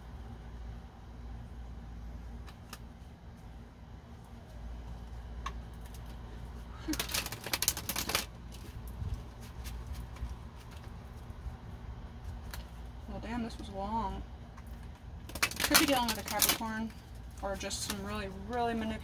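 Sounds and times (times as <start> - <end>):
low steady hum: 0.0 - 19.0
cards being shuffled: 6.8 - 11.0.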